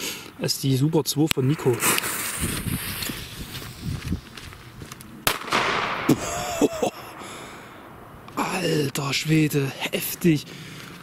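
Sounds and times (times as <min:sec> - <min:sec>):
firecracker bang: 0:05.2 - 0:08.4.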